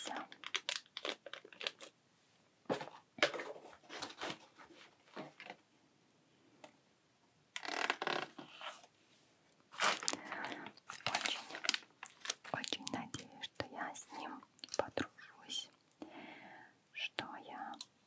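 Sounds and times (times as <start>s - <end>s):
packaging rustling: 0.2s - 2.0s, 2.8s - 5.6s, 9.7s - 13.2s
plastic bag crinkling: 0.2s - 2.0s, 9.7s - 13.4s.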